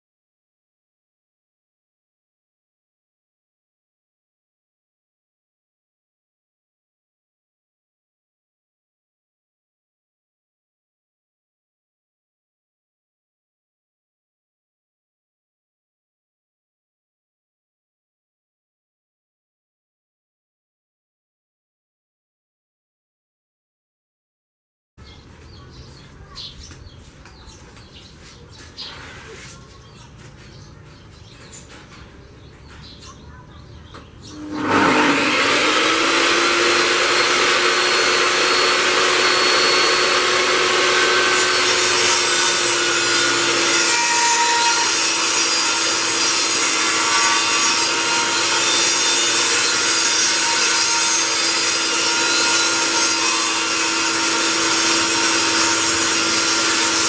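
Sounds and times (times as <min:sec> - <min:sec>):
table saw running: 0:34.2 - 0:57.0.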